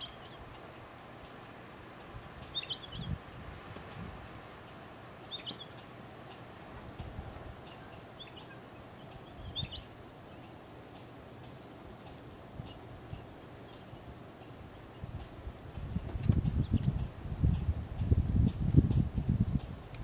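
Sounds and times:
bird chirping calls: 0.0s - 20.0s.

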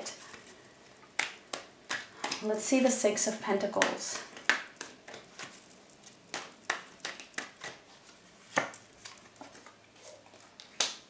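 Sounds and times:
playing cards shuffled by hand: 3.8s - 11.0s.

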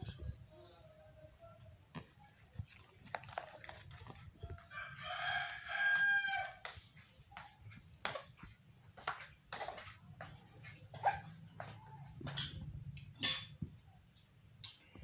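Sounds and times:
plastic sachet crinkling: 1.9s - 6.6s
rooster crowing: 4.5s - 6.7s.

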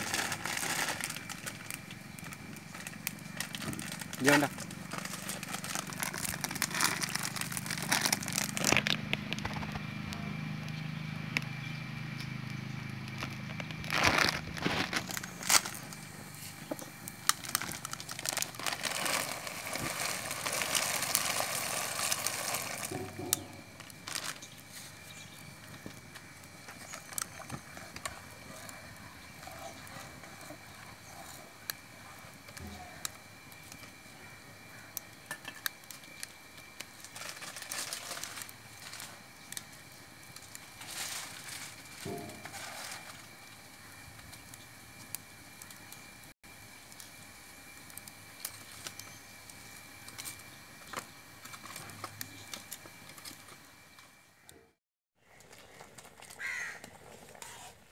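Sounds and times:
wood fire crackling and popping: 0.0s - 53.9s
low steady hum: 0.0s - 56.2s.

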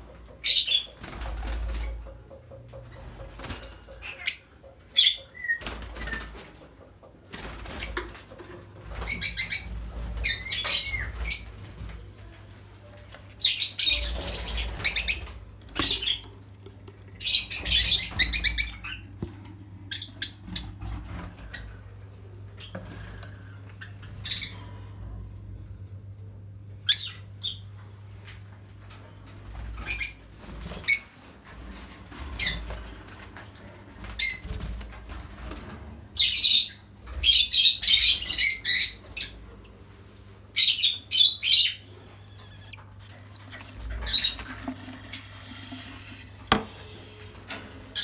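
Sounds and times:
wings flapping: 0.7s - 2.1s, 5.6s - 6.6s.

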